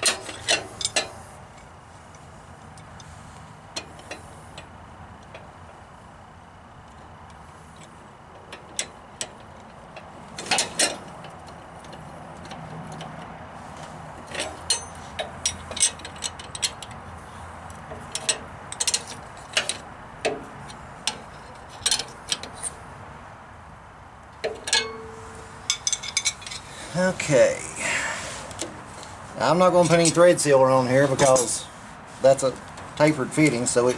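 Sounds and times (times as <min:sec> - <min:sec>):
wrenches clinking on metal fitting: 0:00.0 - 0:01.2, 0:14.2 - 0:17.0, 0:17.9 - 0:20.4, 0:24.4 - 0:26.7, 0:29.6 - 0:31.7.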